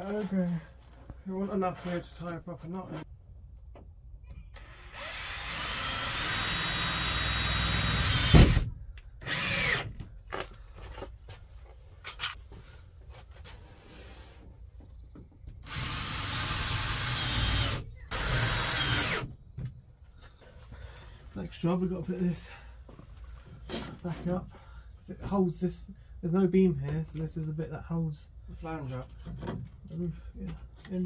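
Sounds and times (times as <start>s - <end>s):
cordless drill driving screws: 4.6s - 8.6s, 9.2s - 10.0s, 15.6s - 19.3s.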